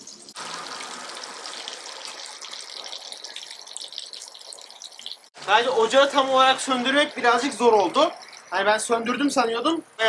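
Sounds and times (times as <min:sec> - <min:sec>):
meat sizzling in fat: 0:00.0 - 0:05.3.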